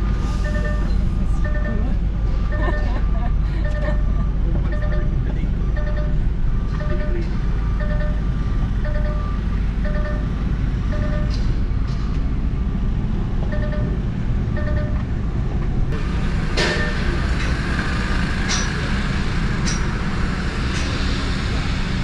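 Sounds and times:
reversing alarm beeping: 0.0 - 12.8, 13.4 - 15.1, 16.4 - 21.7
site machinery rumbling: 0.0 - 22.0
sharp metallic clanks: 18.4 - 19.0, 19.6 - 20.0.

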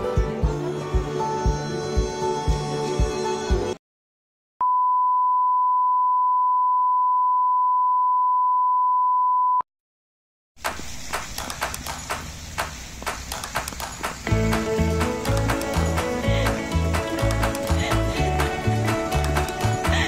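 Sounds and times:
steady test tone beep: 4.6 - 9.6
noise with light clicks: 10.6 - 18.5.

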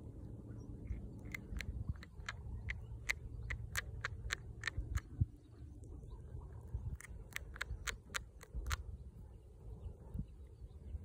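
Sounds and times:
steady low rumble: 0.0 - 11.0
mole chewing with crisp clicks: 0.7 - 9.0.

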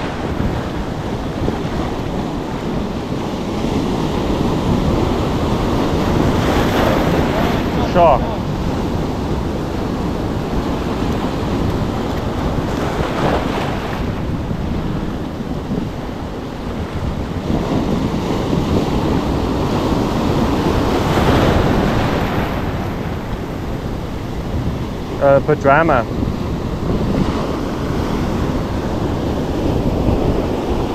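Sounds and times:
surf breaking on rocks: 0.0 - 30.9
wind on microphone: 0.0 - 30.9.

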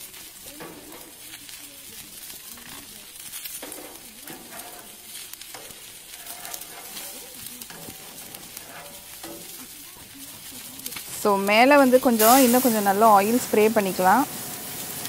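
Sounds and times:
chicken sizzling on a grill: 0.0 - 15.0
metal tongs scraping a grate: 0.5 - 1.5, 2.6 - 11.1.

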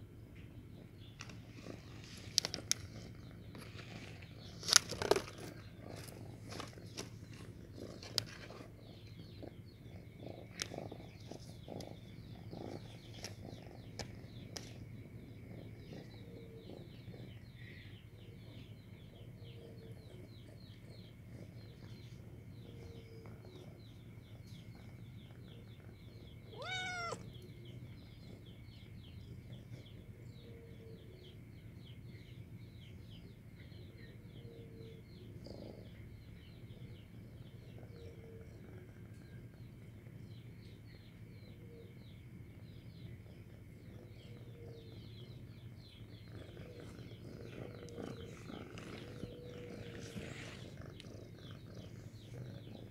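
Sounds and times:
steady low hum: 0.0 - 52.9
faint rapid high chirping: 20.1 - 31.0
cat meowing: 26.5 - 27.3.

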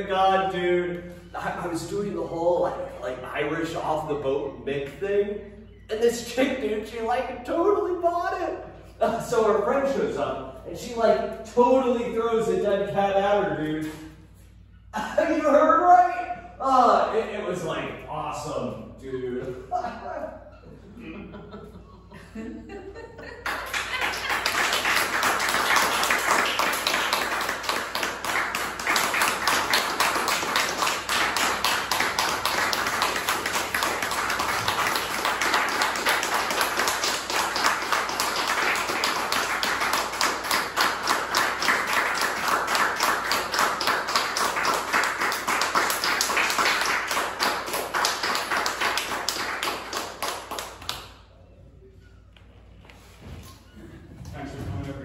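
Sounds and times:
audience applauding: 23.4 - 51.0.

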